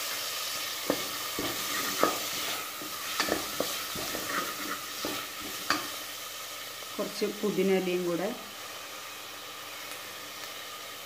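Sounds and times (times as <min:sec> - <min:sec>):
vegetables sizzling in hot oil: 0:00.0 - 0:11.0
wooden spatula scraping pot: 0:00.8 - 0:06.0.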